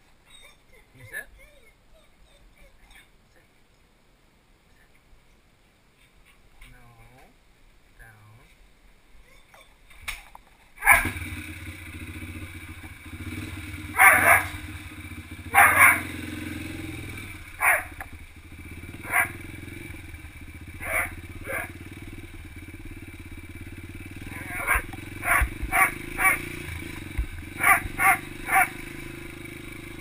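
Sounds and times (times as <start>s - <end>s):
puppy barking: 10.8s - 11.2s, 13.9s - 14.6s, 15.4s - 16.1s, 17.6s - 18.0s, 19.0s - 19.4s, 20.8s - 21.8s, 24.3s - 26.4s, 27.6s - 28.8s
dirt bike engine: 10.8s - 30.0s.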